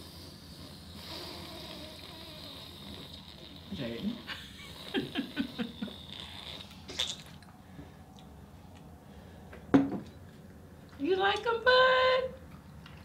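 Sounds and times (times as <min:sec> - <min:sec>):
woman laughing softly: 0:04.3 - 0:06.2.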